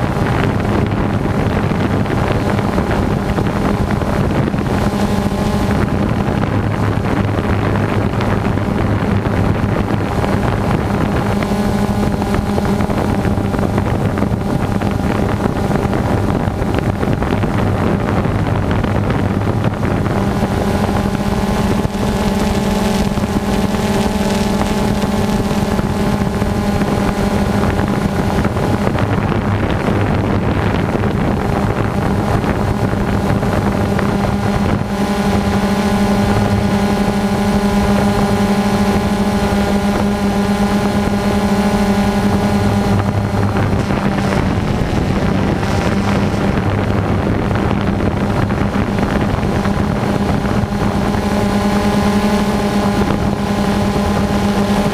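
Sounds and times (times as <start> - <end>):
drone propellers whirring: 0.0 - 54.9
wind rushing over microphone: 0.0 - 54.9.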